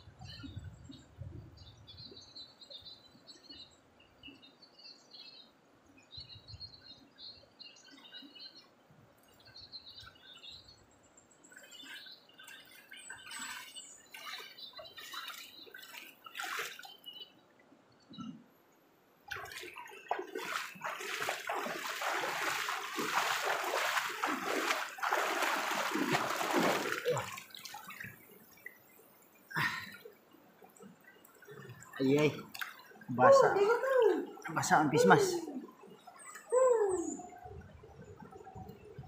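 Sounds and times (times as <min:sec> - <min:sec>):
river water splashing: 0:11.4 - 0:17.4, 0:19.2 - 0:36.5.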